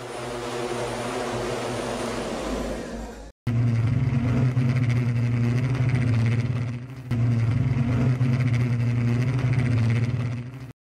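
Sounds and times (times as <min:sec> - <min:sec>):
multicopter motors humming: 0:00.0 - 0:10.8.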